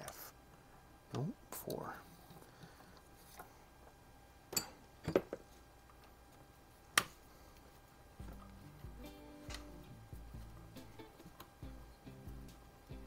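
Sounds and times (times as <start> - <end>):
soft background music: 8.2 - 13.0.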